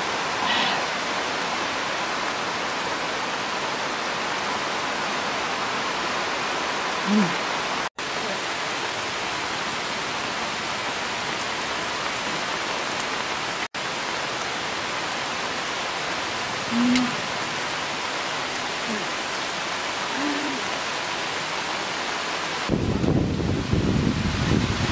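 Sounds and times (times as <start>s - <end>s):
heavy rain hissing: 0.0s - 24.9s
low humming voice: 16.7s - 17.2s, 18.8s - 19.1s, 20.2s - 20.7s.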